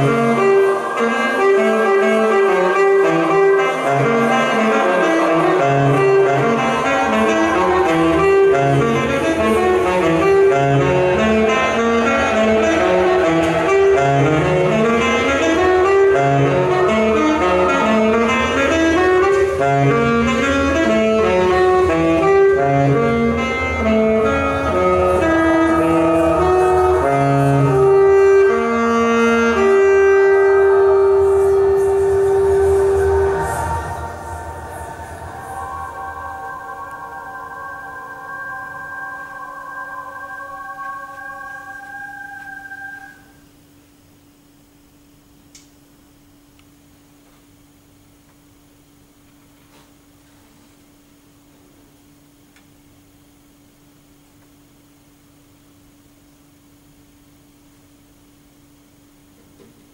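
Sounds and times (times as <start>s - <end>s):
alto saxophone runs: 0.0s - 43.7s
low steady drone: 0.0s - 45.1s.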